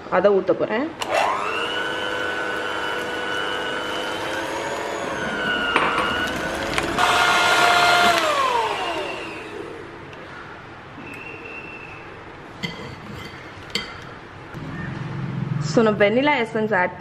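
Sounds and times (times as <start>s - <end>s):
electric hand mixer whining: 1.0s - 9.9s.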